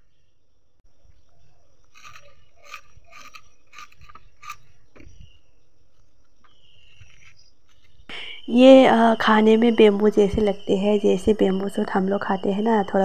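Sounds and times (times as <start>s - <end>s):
crunchy cuts on kitchen blade: 1.9s - 5.4s.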